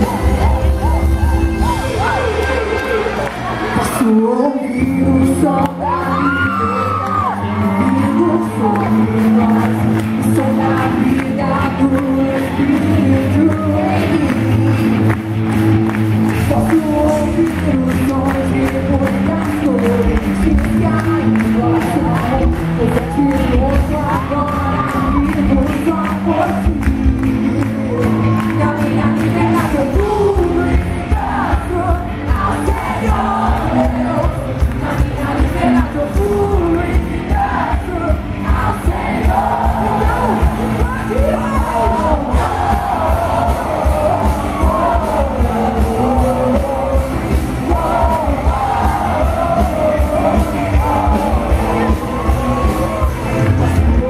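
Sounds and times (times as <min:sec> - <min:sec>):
crowd singing along: 0:00.0 - 0:15.0, 0:24.2 - 0:54.0
worship band playing: 0:00.0 - 0:23.1, 0:24.1 - 0:54.0
woman singing into microphone: 0:03.7 - 0:14.4, 0:16.4 - 0:47.0
steady drum beat: 0:08.8 - 0:54.0.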